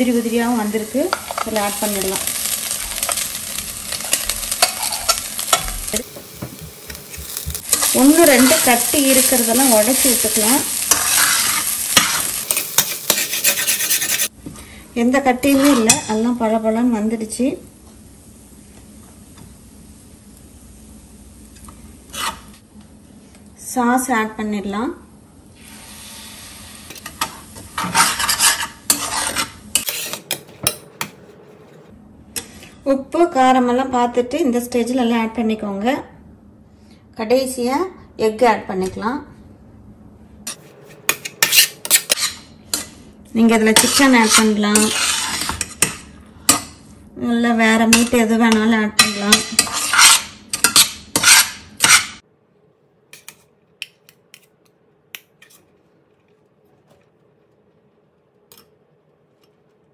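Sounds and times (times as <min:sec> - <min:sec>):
spatula scraping a pan: 0:04.6 - 0:05.6, 0:07.2 - 0:14.3, 0:15.4 - 0:16.1, 0:22.1 - 0:22.6, 0:27.0 - 0:30.4, 0:40.5 - 0:46.7, 0:49.0 - 0:52.2.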